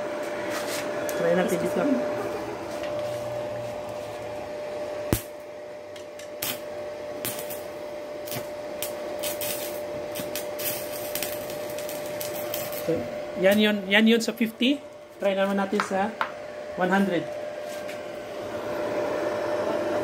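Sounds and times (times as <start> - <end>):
welder whine: 0.0 - 20.0
welding arc crackling snaps: 5.1 - 16.3.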